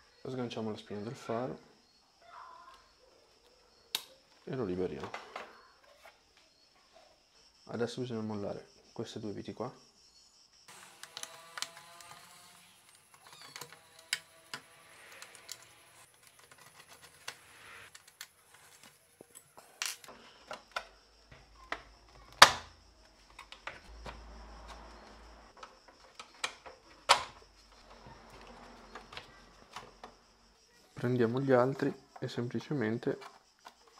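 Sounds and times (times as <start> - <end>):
plastic panels clicking and knocking: 25.6 - 27.9.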